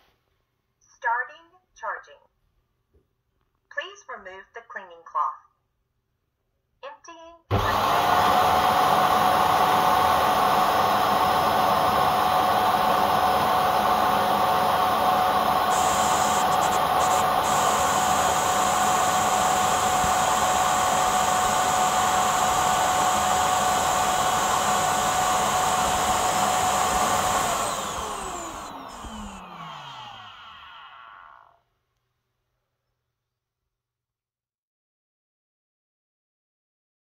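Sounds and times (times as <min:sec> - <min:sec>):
suction motor whining: 0:07.5 - 0:31.6.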